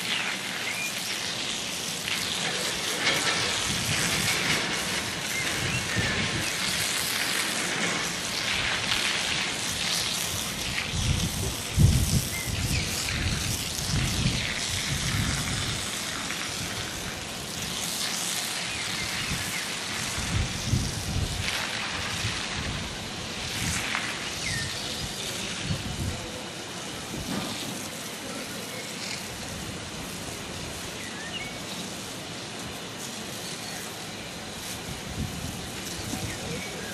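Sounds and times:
steady hiss: 0:00.0 - 0:36.9
wind buffeting microphone: 0:03.0 - 0:17.8, 0:18.8 - 0:27.9, 0:34.6 - 0:36.9.

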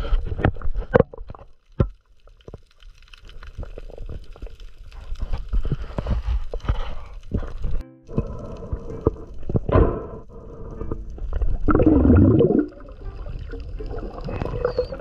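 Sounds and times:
low underwater rumble: 0:07.6 - 0:15.0.

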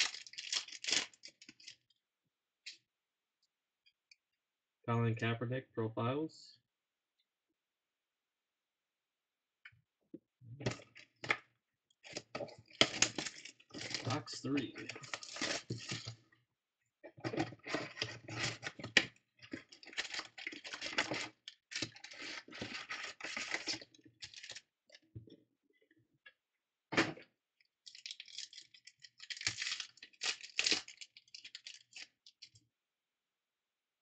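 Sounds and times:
foil card packs crinkling: 0:00.0 - 0:01.8, 0:12.0 - 0:16.2, 0:17.6 - 0:24.6, 0:27.9 - 0:32.4.

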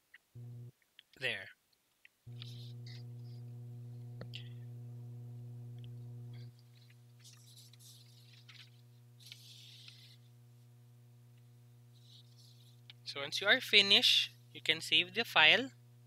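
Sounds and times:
electrical mains hum: 0:00.0 - 0:01.5, 0:02.2 - 0:16.0
soft rustles: 0:06.4 - 0:10.3.

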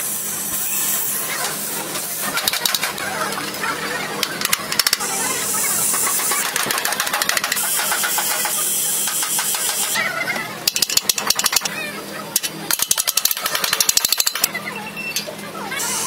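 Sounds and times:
gas torch hissing: 0:00.0 - 0:02.4
rapid metal-on-metal tapping: 0:06.0 - 0:10.0, 0:10.6 - 0:11.7, 0:12.4 - 0:14.5.

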